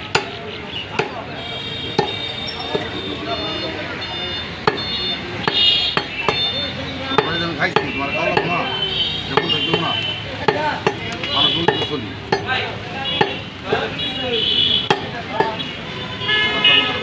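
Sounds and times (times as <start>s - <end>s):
cleaver chopping on wooden block: 0.1s - 1.3s, 1.9s - 2.9s, 4.6s - 6.4s, 9.3s - 13.9s, 14.8s - 15.6s.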